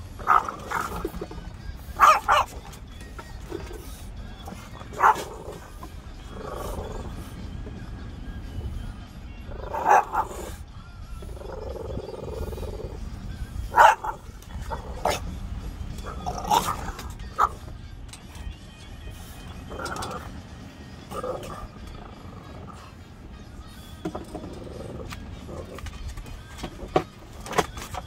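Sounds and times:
dog barking: 0:00.2 - 0:01.2, 0:01.9 - 0:02.7, 0:04.5 - 0:05.7, 0:09.6 - 0:10.6, 0:13.6 - 0:15.3, 0:16.0 - 0:17.6
dog growling: 0:00.2 - 0:02.6, 0:03.4 - 0:07.4, 0:09.4 - 0:10.6, 0:11.2 - 0:15.4, 0:16.0 - 0:17.6, 0:19.7 - 0:20.3, 0:21.1 - 0:23.1, 0:24.4 - 0:26.0.

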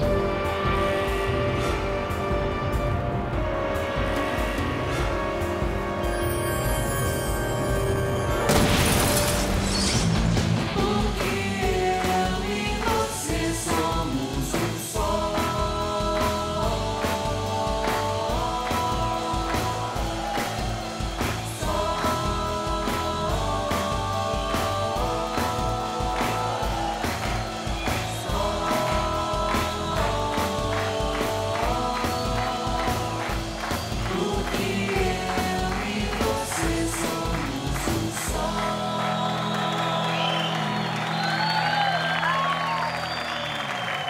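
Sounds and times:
pop-rock band playing: 0:00.0 - 0:39.4
drum beat: 0:10.5 - 0:39.0.

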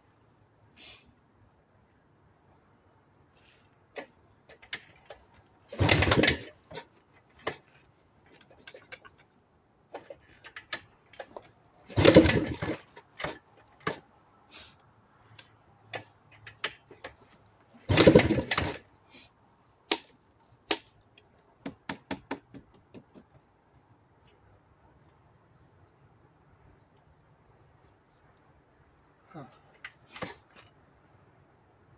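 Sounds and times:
dirt bike engine cranking: 0:04.0 - 0:07.7, 0:10.0 - 0:14.0, 0:17.8 - 0:18.9.

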